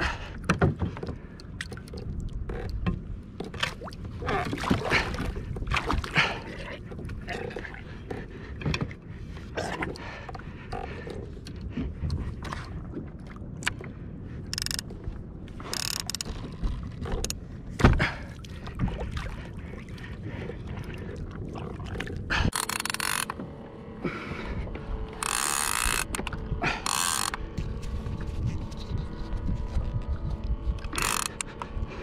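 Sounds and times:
fishing reel ratchet clicking: 0:14.5 - 0:14.9, 0:15.7 - 0:16.3, 0:22.5 - 0:23.4, 0:25.2 - 0:27.4, 0:30.8 - 0:31.6
low rumble: 0:23.2 - 0:32.0.

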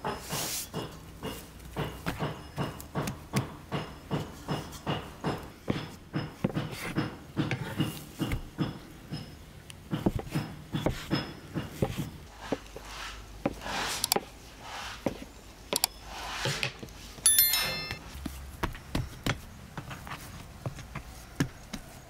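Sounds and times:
electronic bell chime: 0:17.3 - 0:18.0.

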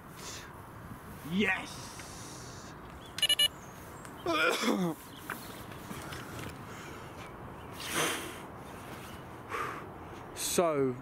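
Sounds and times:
electronic bite alarm beeps: 0:03.2 - 0:03.6.

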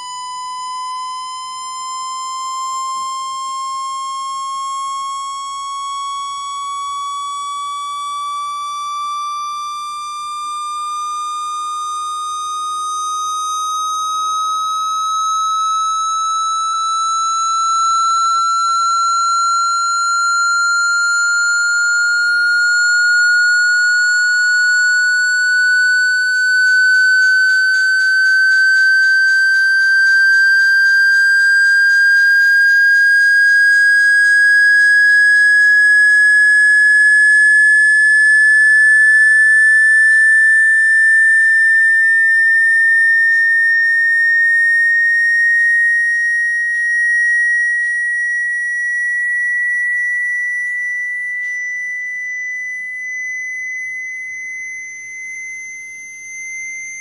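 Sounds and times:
rising electronic sine tone: 0:00.0 - 0:57.0.

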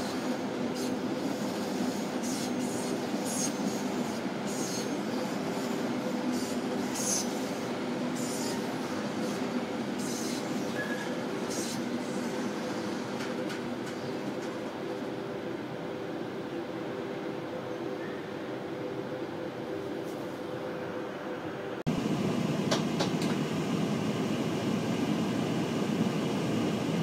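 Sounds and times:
short high wheel squeals: 0:10.0 - 0:12.3.

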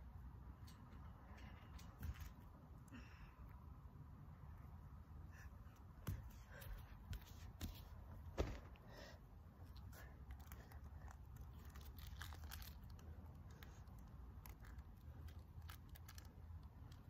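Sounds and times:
faint clicks and crackles: 0:09.7 - 0:17.0.

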